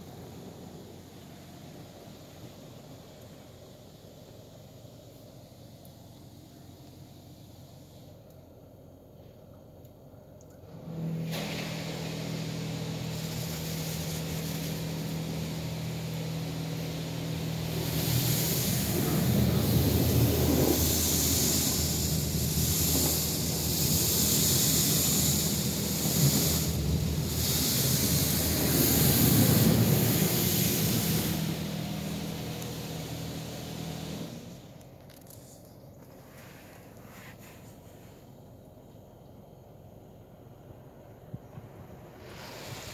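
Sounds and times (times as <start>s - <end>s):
steady machine hum: 0.0s - 42.9s
high-pressure water spraying on car: 11.2s - 34.8s, 42.0s - 42.9s.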